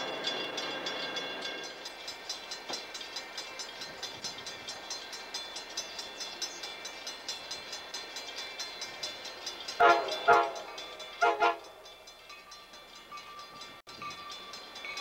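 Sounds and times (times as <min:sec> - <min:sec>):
train horn blasts: 0:09.8 - 0:11.8.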